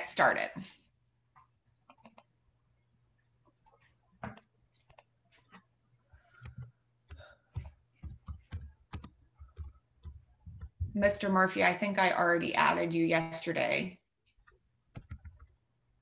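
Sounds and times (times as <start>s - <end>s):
keyboard and mouse clicking: 1.9s - 2.3s, 3.6s - 5.6s, 6.2s - 10.9s, 14.4s - 15.6s.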